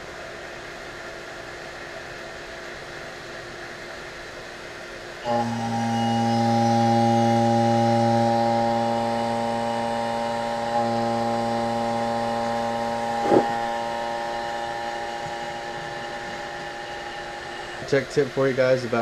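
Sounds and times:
vacuum pump motor hum: 0:05.2 - 0:19.0.

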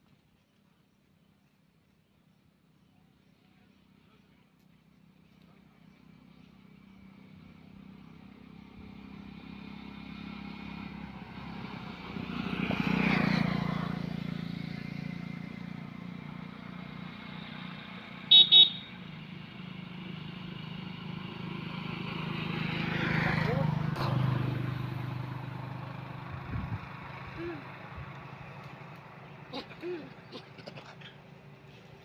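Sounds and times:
vehicle engine passing: 0:05.8 - 0:32.0
car horn beeps: 0:18.3 - 0:18.9.

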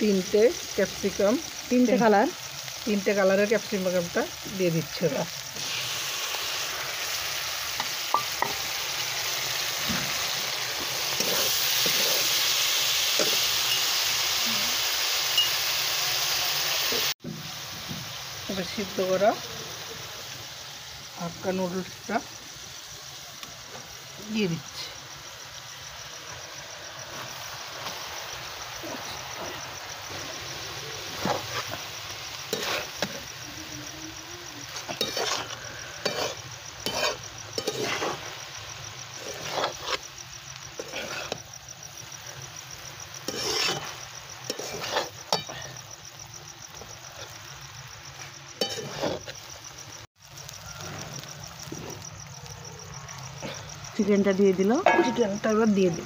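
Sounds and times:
crickets chirping: 0:00.0 - 0:56.0
food sizzling in a wok: 0:00.0 - 0:56.0
metal spatula clanking on wok: 0:54.8 - 0:55.4.

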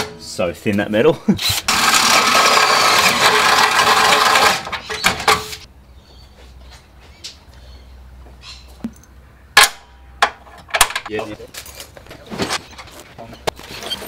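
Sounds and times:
cordless drill running: 0:01.7 - 0:04.6.

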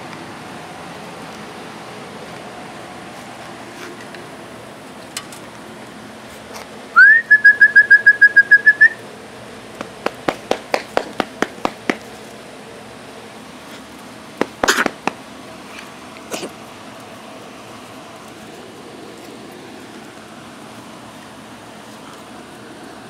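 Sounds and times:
loud whistled trill: 0:07.0 - 0:09.0
sharp taps: 0:09.8 - 0:12.1, 0:14.4 - 0:15.2.

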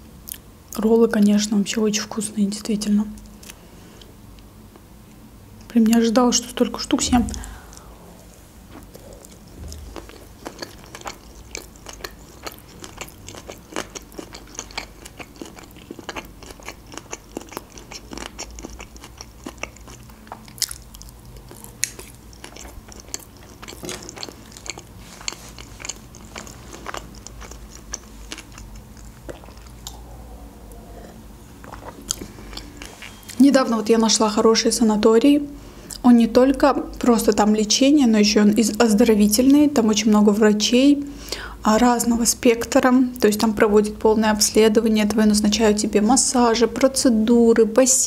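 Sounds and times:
chewing with mouth clicks: 0:08.7 - 0:30.1, 0:30.7 - 0:33.4.

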